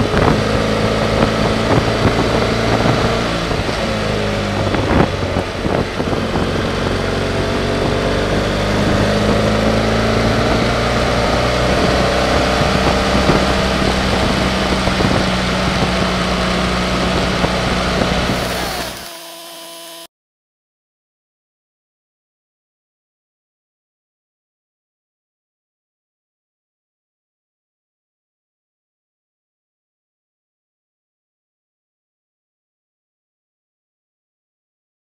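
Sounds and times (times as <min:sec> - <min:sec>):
wind noise on microphone: 0:00.0 - 0:19.1
motorcycle engine running: 0:00.0 - 0:20.1.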